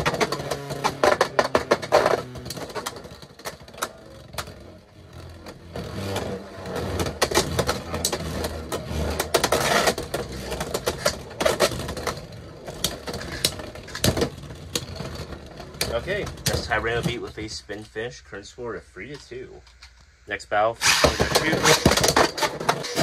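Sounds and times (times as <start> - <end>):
spinning tops whirring: 20.8 - 23.0.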